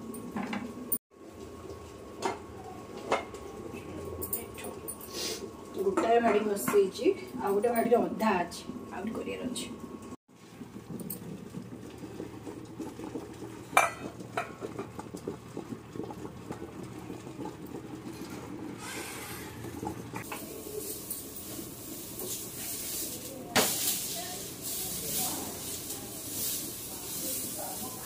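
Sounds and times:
hiss: 0:18.8 - 0:19.6, 0:20.3 - 0:28.0.

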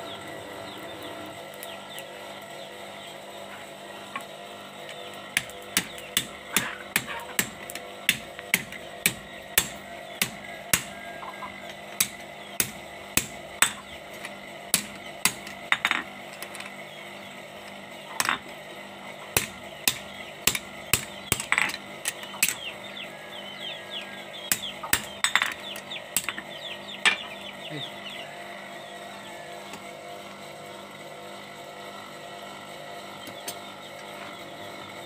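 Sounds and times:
hammer striking metal on anvil: 0:05.4 - 0:10.9, 0:14.7 - 0:15.9, 0:24.5 - 0:25.6.

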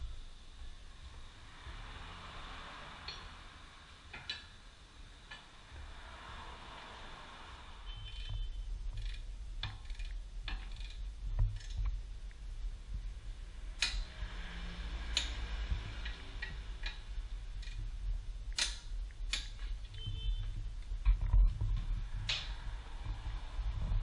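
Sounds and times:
steady low hum: 0:00.0 - 0:24.0
wrench clicking and clinking: 0:09.0 - 0:11.8, 0:13.8 - 0:14.1, 0:15.1 - 0:17.8, 0:18.5 - 0:19.8.

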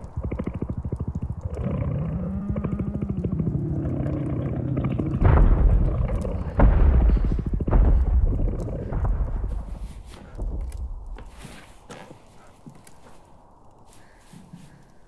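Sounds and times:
creature's deep rattling growl: 0:00.0 - 0:11.0
heavy low booms: 0:00.0 - 0:11.4.

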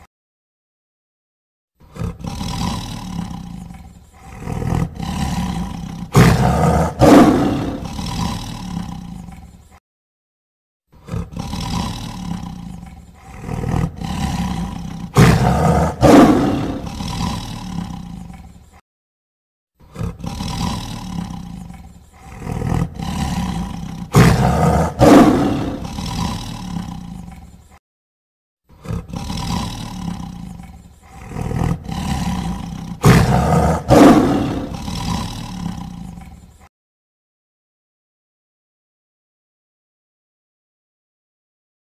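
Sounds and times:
tiger roaring: 0:01.8 - 0:09.8, 0:11.0 - 0:18.8, 0:19.8 - 0:27.8, 0:28.7 - 0:36.7.

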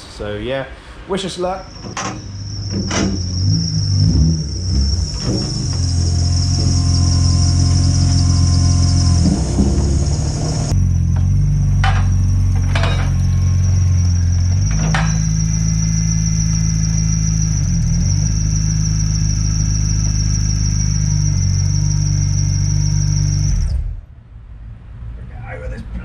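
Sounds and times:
car engine under load: 0:01.0 - 0:24.2
high-pitched whine: 0:01.3 - 0:24.0
tyre turning on rollers: 0:01.7 - 0:13.4.

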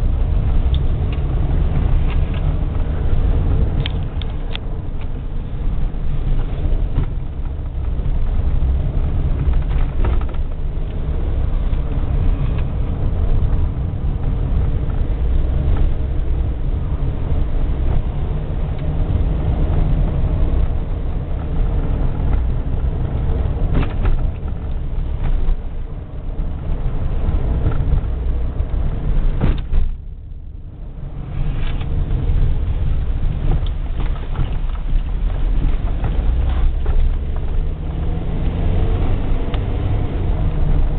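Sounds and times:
car engine and road rumble: 0:00.0 - 0:40.9
knocks from road bumps: 0:23.3 - 0:25.6, 0:27.4 - 0:30.0.

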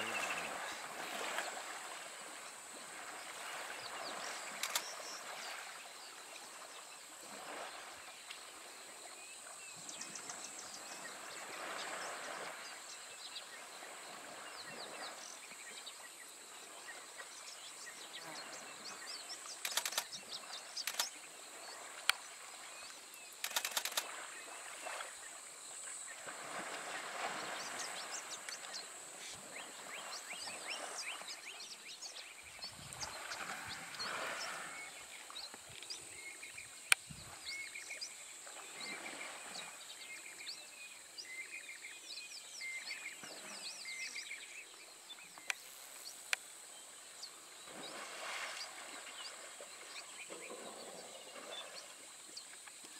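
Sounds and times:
elephants splashing in water: 0:00.0 - 0:08.7, 0:23.4 - 0:28.7, 0:32.8 - 0:35.5, 0:47.3 - 0:52.4
sharp clicks: 0:04.6 - 0:04.9, 0:19.6 - 0:20.2, 0:20.8 - 0:21.1, 0:23.4 - 0:24.1
insect buzz: 0:45.3 - 0:49.0.

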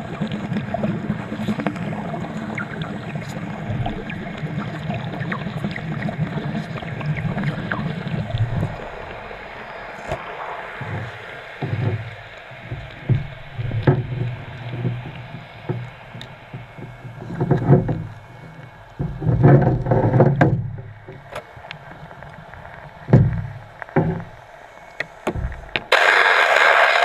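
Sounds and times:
underwater exhalation bubbles: 0:00.0 - 0:19.2.

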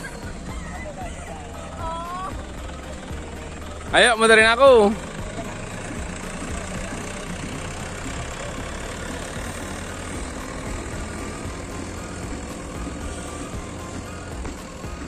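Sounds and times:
diesel engine idling low: 0:00.0 - 0:15.0.

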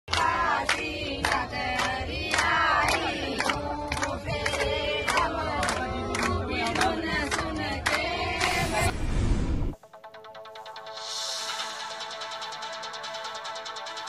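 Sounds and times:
hand claps: 0:00.1 - 0:08.5
crowd singing devotional song: 0:00.1 - 0:09.0.

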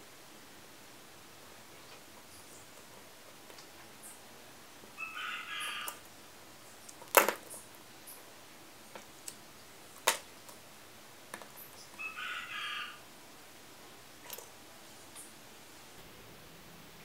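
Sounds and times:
pitched animal call: 0:05.0 - 0:06.0, 0:12.0 - 0:13.0.

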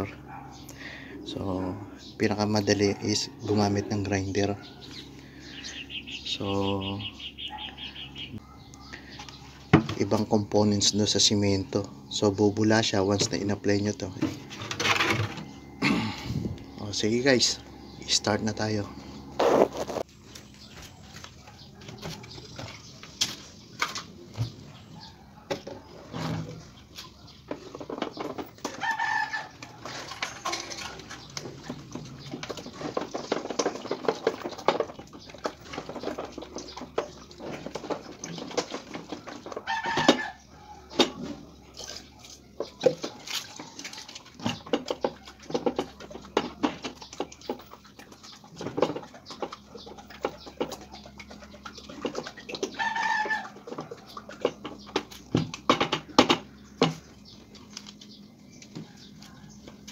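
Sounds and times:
buckets knocking and scraping: 0:00.0 - 0:06.1, 0:08.4 - 0:59.9
chicken calling: 0:03.0 - 0:09.6, 0:38.6 - 0:41.2, 0:49.5 - 0:55.0.

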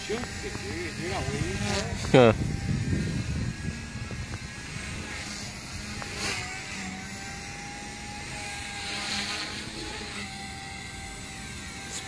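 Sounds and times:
wind noise on microphone: 0:00.0 - 0:06.9
model helicopter whine: 0:00.0 - 0:12.0.

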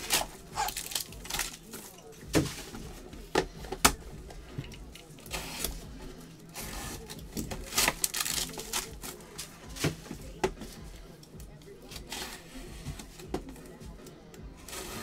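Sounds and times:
packaging crinkling and tearing: 0:00.0 - 0:01.9, 0:06.4 - 0:10.0
packaging clicks and knocks: 0:00.0 - 0:05.9, 0:06.6 - 0:10.8
background music: 0:00.0 - 0:15.0.

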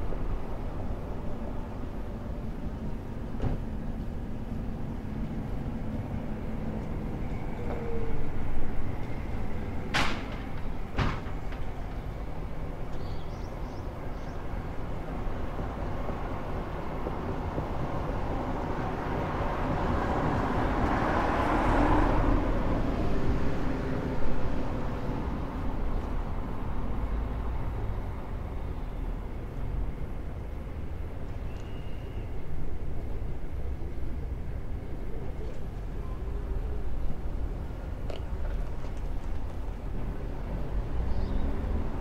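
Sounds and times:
vehicle passing by: 0:18.4 - 0:25.6.

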